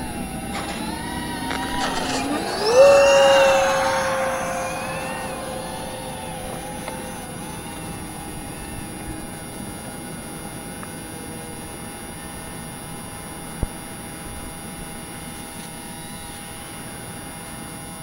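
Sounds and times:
quadcopter motors whining: 0.0 - 10.6.

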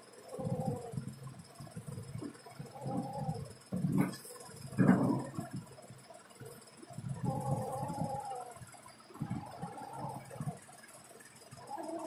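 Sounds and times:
cat rumbling vocal: 0.2 - 5.7, 7.0 - 10.6, 11.6 - 12.0.

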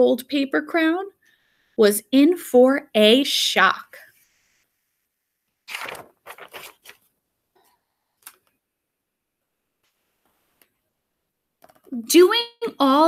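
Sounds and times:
paper page rustling: 5.6 - 7.1.

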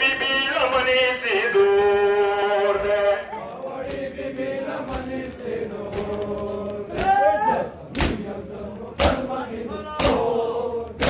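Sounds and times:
man chanting a lament: 0.0 - 3.4
hands slapping chests: 4.8 - 5.3, 5.9 - 8.3, 10.0 - 10.3.

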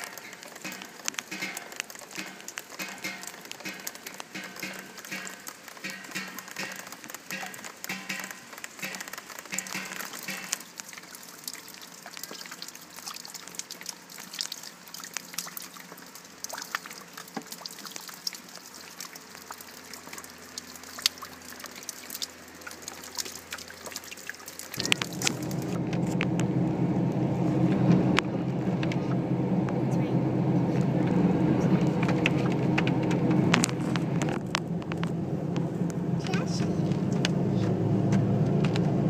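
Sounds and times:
rain dripping on wood and plants: 0.0 - 30.1, 30.8 - 37.7
car driving on wet road: 0.0 - 39.0.

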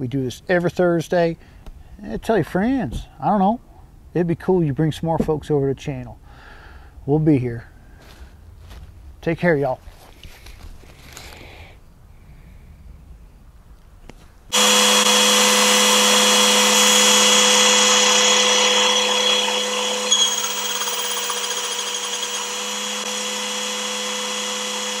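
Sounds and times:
electric motor whining: 14.5 - 25.0.

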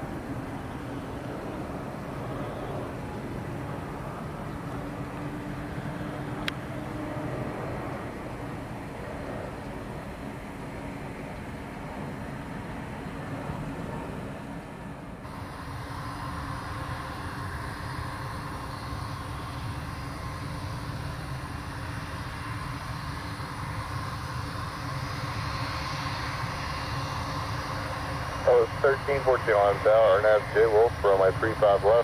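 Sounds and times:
jet airliner engines rumbling: 0.0 - 32.0.

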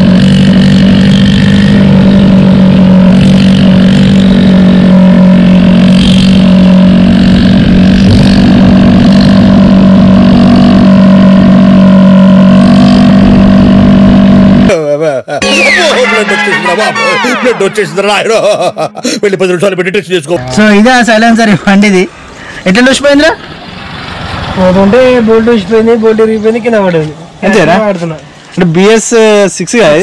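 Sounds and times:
scooter engine droning: 0.0 - 14.7.

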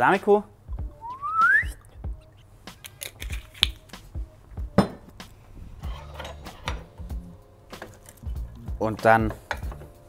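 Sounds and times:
metal utensils clinking: 5.8 - 7.0, 7.7 - 8.4.

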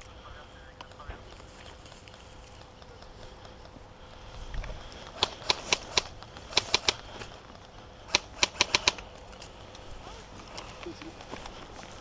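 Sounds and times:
airsoft rifle shots clacking: 5.1 - 7.1, 8.1 - 9.0.

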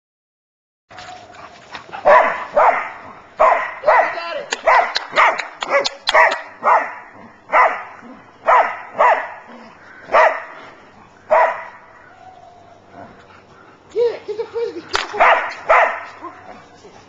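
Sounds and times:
dog barking: 2.0 - 10.6, 11.3 - 12.1, 15.1 - 16.6.

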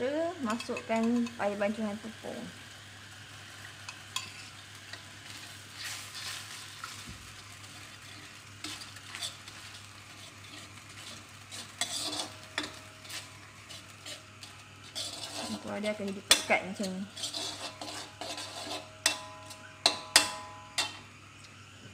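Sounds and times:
sauce sizzling in a wok: 0.0 - 21.9
metal ladle scraping a pan: 3.8 - 7.0, 7.7 - 21.0.

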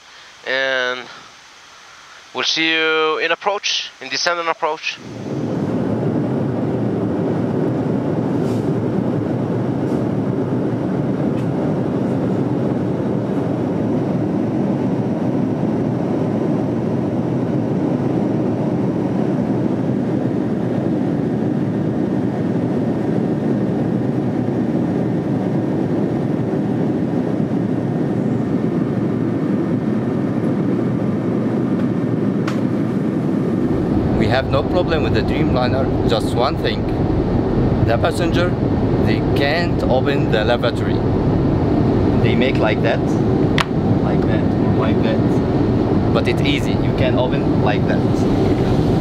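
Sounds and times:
airplane cabin engine rumble: 0.0 - 49.0.

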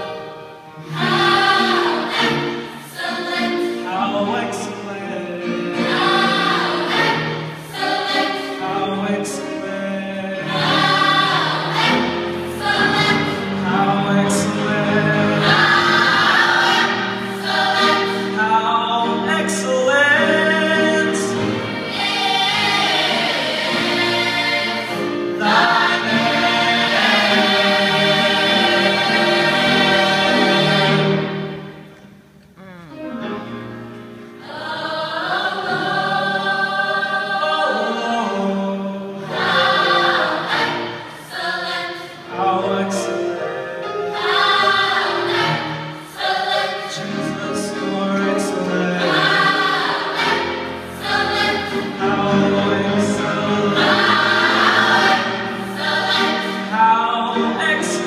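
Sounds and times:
gospel choir singing: 0.0 - 32.0, 33.2 - 58.0.

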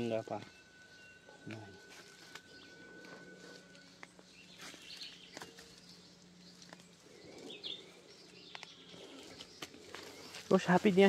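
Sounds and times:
faint bird chirps: 0.0 - 10.8.

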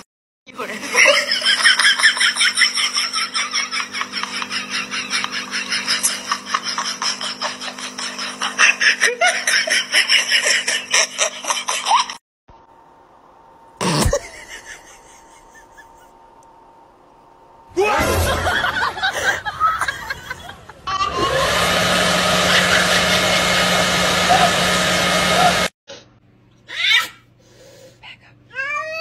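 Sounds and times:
rapid pulsing laughter: 0.6 - 12.2, 14.0 - 16.2, 18.0 - 21.4, 22.1 - 25.7
faint steady hum: 12.5 - 17.8.

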